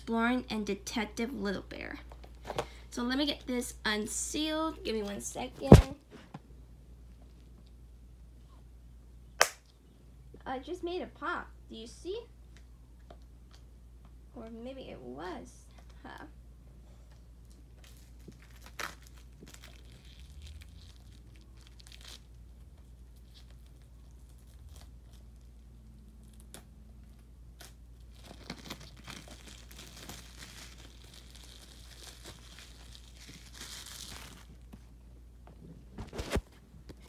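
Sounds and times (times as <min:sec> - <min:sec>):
plastic wrapping crinkling and tearing: 0:17.4 - 0:34.8.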